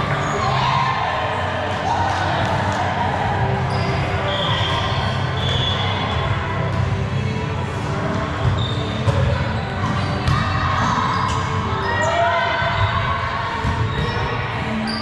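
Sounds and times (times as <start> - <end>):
players' voices and chatter: 0.0 - 15.0
shoes squeaking on court floor: 3.6 - 6.0, 8.2 - 10.4.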